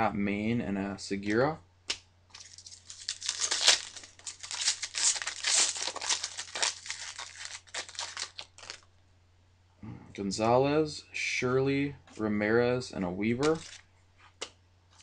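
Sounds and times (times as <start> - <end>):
foil wrapper tearing and crinkling: 2.3 - 8.9, 13.4 - 13.8.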